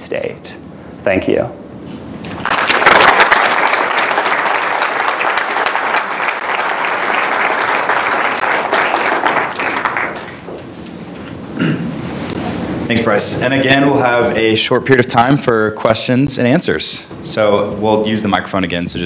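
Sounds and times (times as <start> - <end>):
audience applauding: 2.3 - 10.6.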